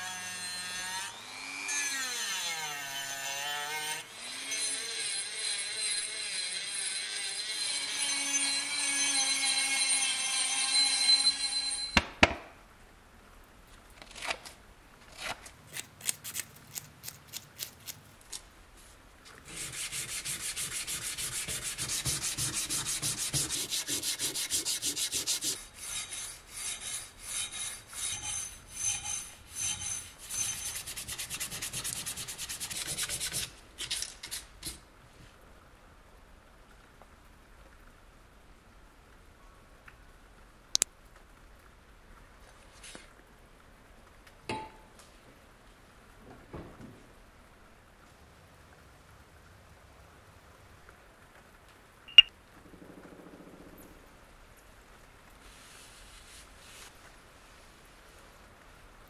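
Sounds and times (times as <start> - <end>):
sandpaper rubbing on metal: 19.5 - 33.5.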